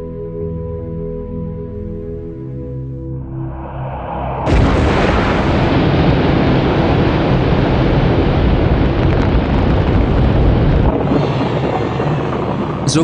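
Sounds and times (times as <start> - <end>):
rocket engines rumbling: 3.2 - 13.0.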